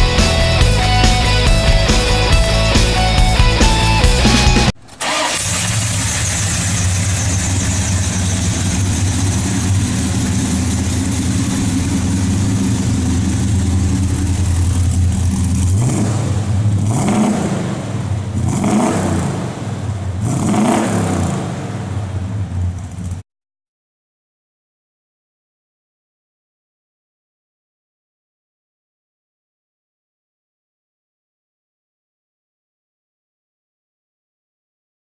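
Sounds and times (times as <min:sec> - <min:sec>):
car engine idling and revving: 0:00.0 - 0:23.2.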